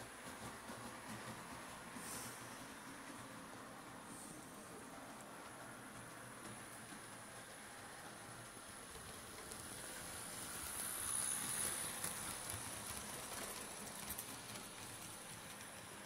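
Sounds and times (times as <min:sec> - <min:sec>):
model train wheels rattling on track: 0:00.0 - 0:16.0
wheels clicking over rail joints: 0:00.0 - 0:16.0.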